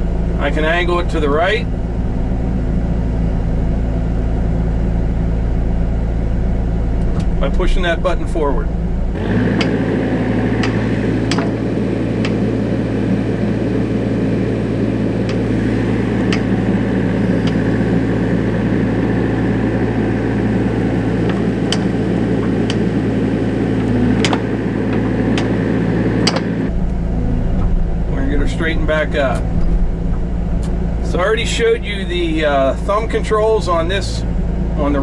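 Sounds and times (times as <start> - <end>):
excavator diesel engine running: 8.7 - 35.0
sharp clicks and knocks: 9.2 - 26.7
thin high whine: 9.2 - 29.7.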